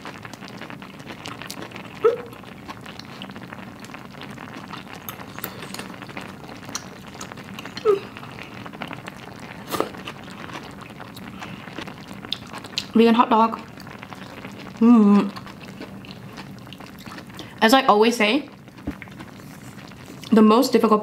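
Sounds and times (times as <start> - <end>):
chewing food: 0.0 - 13.0, 13.6 - 17.6, 18.5 - 20.4
stew bubbling: 0.0 - 17.6, 18.5 - 20.4.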